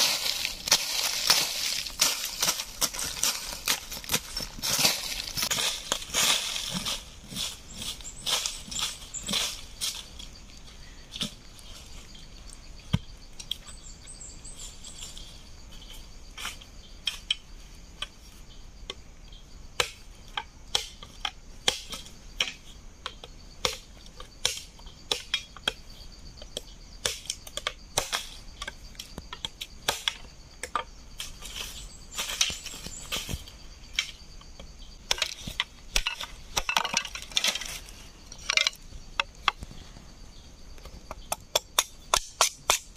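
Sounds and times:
high-pitched insect drone: 0.0 - 19.6
machete chopping bamboo: 19.8 - 20.1, 20.7 - 25.8, 27.0 - 28.3, 29.4 - 30.8, 41.2 - 42.9.

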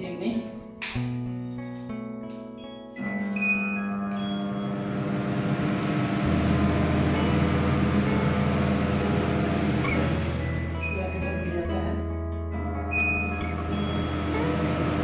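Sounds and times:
range hood fan humming: 4.0 - 11.6, 12.7 - 15.0
deeper hum: 4.4 - 11.5, 12.8 - 15.0.

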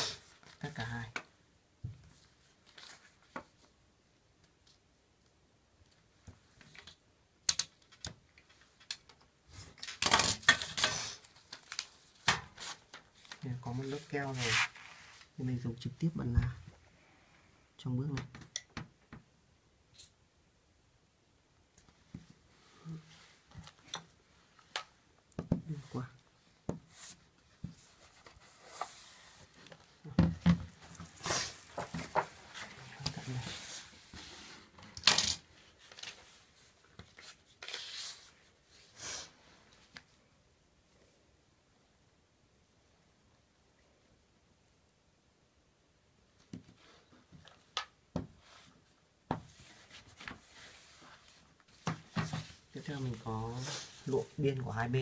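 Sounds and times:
paper rustling: 2.4 - 3.7, 9.6 - 15.4, 26.9 - 30.0, 30.7 - 38.9
paper scraping rustle: 12.5 - 15.3, 27.8 - 29.7, 35.6 - 38.5.

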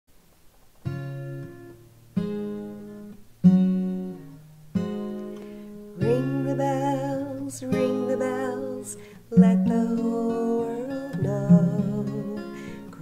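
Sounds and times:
acoustic guitar strumming: 0.8 - 13.0
woman singing: 6.0 - 13.0.

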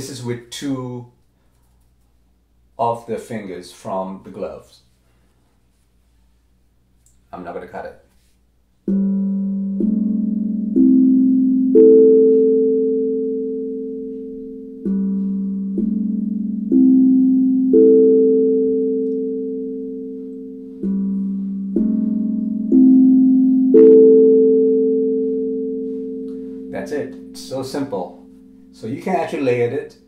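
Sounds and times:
steel tongue drum notes: 8.8 - 30.0.

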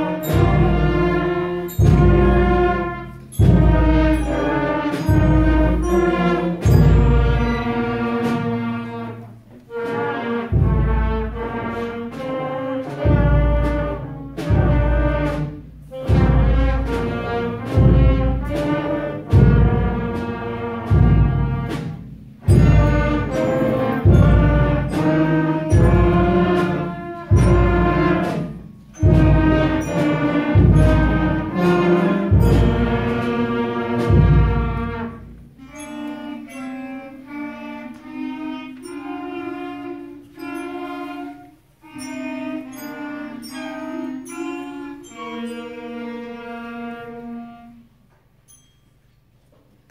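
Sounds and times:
string and brass ensemble playing: 0.0 - 48.6.

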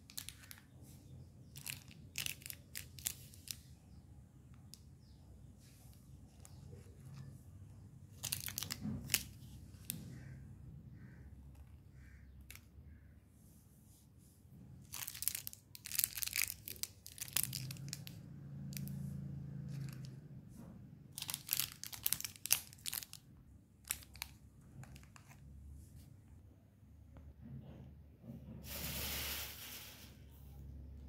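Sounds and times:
plastic candy wrappers crinkling: 0.0 - 10.4, 14.7 - 19.0, 19.7 - 20.2, 21.1 - 25.6.

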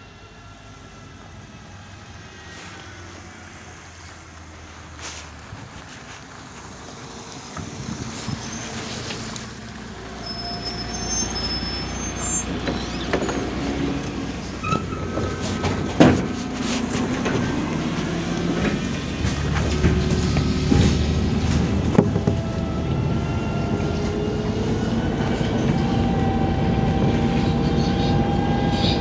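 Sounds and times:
bus engine rumble: 0.0 - 29.0
short high squeals: 7.6 - 15.4.

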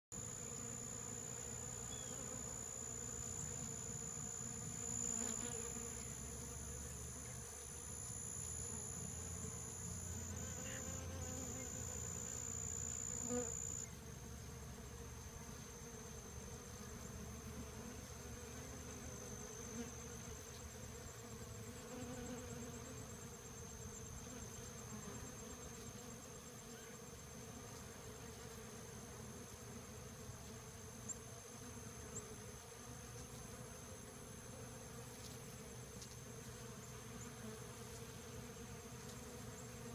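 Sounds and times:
honey bees buzzing: 0.2 - 26.7.

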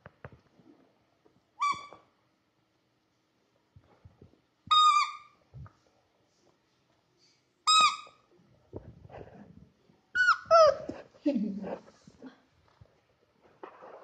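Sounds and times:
rubber squeaky ball squeaking: 1.6 - 2.1, 4.7 - 5.4, 7.7 - 8.2, 10.2 - 10.9.

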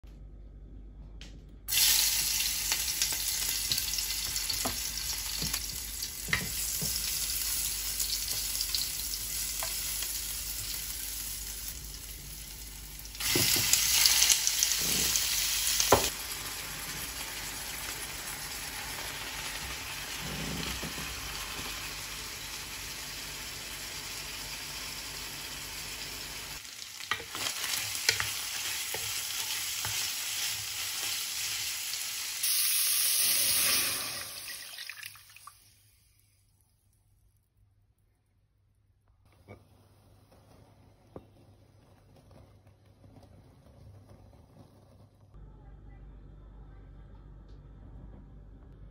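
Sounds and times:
food sizzling in hot oil: 1.7 - 36.3.

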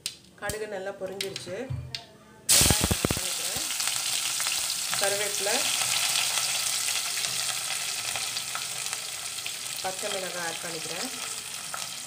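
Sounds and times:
onions sizzling in hot oil: 2.5 - 12.0.

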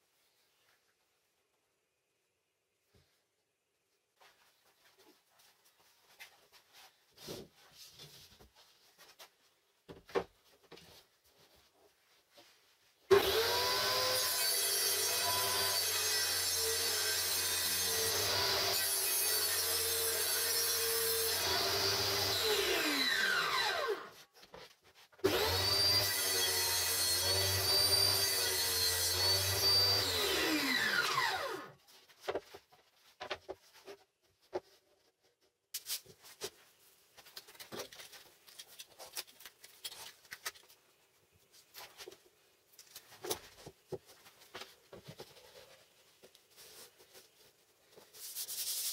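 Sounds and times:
table saw cutting and winding down: 13.1 - 24.1, 25.2 - 31.8.

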